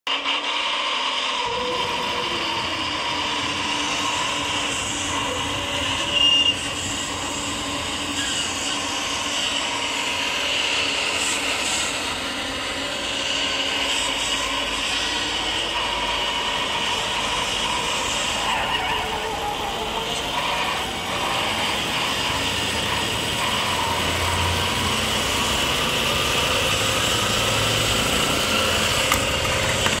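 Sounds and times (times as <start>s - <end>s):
truck engine running: 0.2s - 30.0s.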